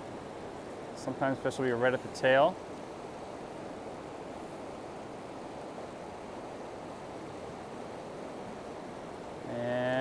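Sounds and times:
river water rushing over rocks: 0.0 - 10.0.

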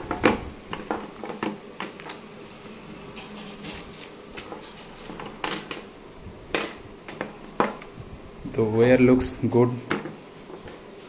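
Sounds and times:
extension cord rustling: 0.0 - 5.9.

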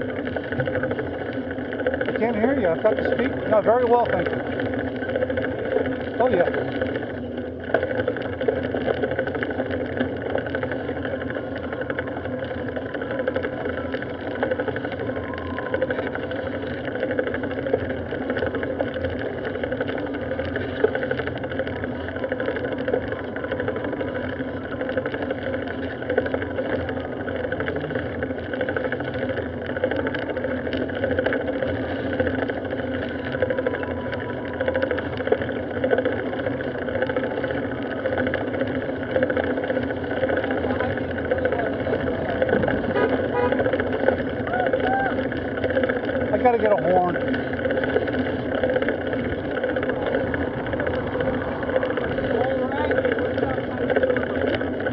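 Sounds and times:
bicycle road rumble: 0.0 - 54.9
wind: 0.0 - 54.9.

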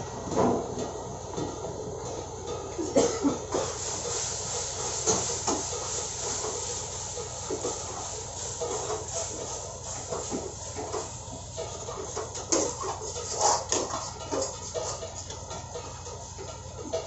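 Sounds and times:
gas burner roaring: 0.0 - 17.0
food sizzling in a wok: 3.4 - 17.0.

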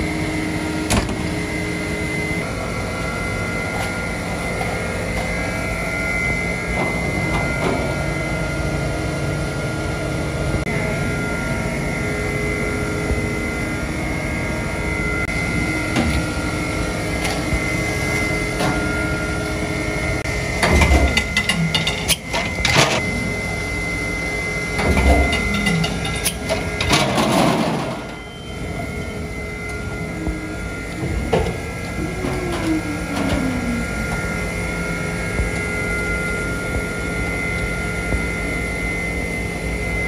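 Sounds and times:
hydraulics humming: 0.0 - 40.0
heavy machine thumps: 20.6 - 21.4
whine falling in pitch: 27.9 - 40.0.

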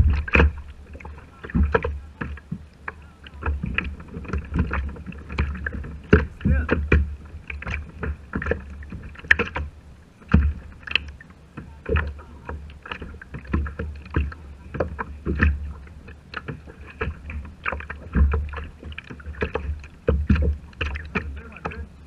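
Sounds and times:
steady low rumble: 0.0 - 16.3
water slapping plastic hull: 0.0 - 22.0.

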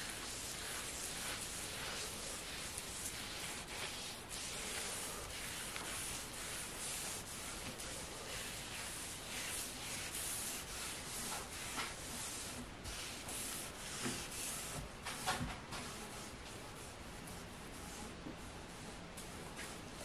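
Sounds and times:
pad scrubbing wood: 0.0 - 14.9.

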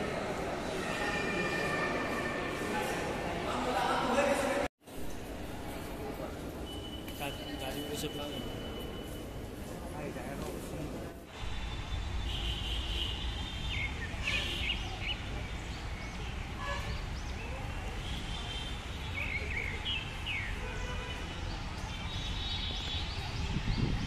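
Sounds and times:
birds chirping: 11.6 - 24.0.

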